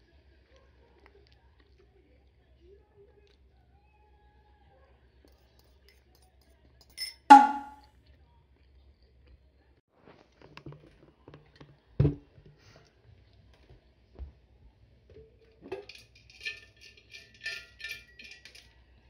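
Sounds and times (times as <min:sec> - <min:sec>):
sharp ringing percussion hit: 0:07.3 - 0:07.8.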